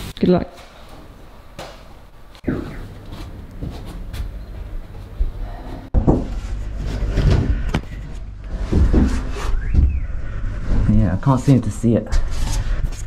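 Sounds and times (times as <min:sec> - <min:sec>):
rumbling handling noise: 0:02.8 - 0:11.1
person clambering through roof space: 0:03.2 - 0:11.4.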